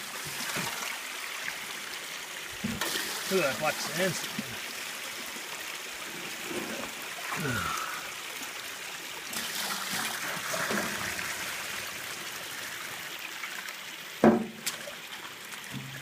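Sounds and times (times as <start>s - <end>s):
water running and splashing: 0.0s - 16.0s
sharp knock: 14.2s - 14.6s.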